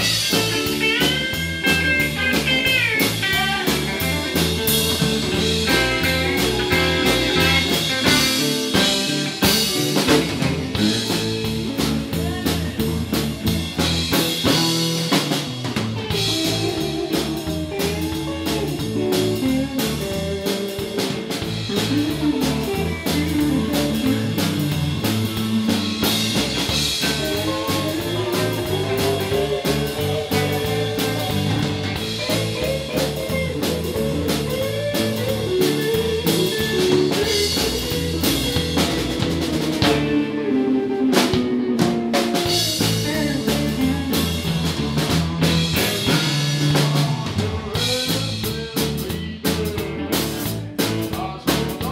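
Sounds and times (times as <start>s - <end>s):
drum hits: 0.0s - 40.2s
bent guitar notes: 0.0s - 50.7s
band playing electric guitars: 0.0s - 51.9s.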